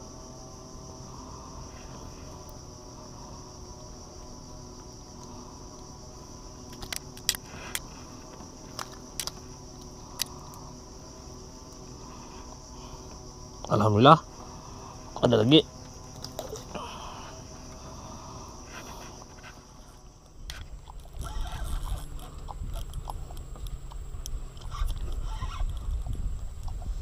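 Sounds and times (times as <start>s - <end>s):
insects chorus: 0.0s - 27.0s
sharp clicks of prawn handling: 6.7s - 7.9s, 8.7s - 10.6s.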